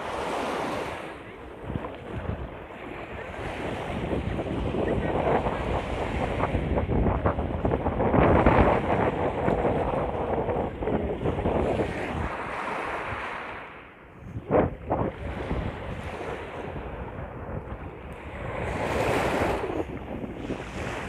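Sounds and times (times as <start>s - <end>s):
waves lapping on sandy shore: 0.0s - 21.0s
wind on microphone: 0.0s - 21.0s.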